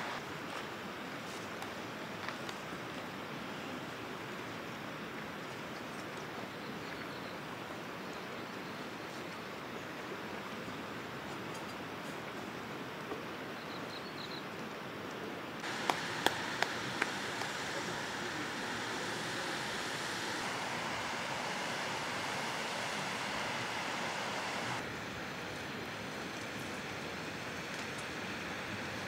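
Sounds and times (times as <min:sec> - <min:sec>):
rushing outdoor noise: 0:00.0 - 0:05.1, 0:15.6 - 0:29.0
sharp clicks or taps: 0:15.6 - 0:17.5.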